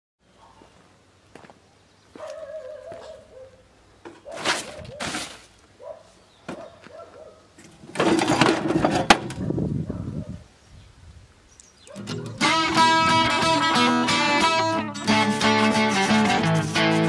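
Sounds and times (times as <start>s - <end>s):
wooden board scraping: 4.1s - 5.6s, 7.7s - 9.5s, 12.0s - 17.0s
loudspeaker scraping and rattling: 7.8s - 9.4s, 12.0s - 17.0s.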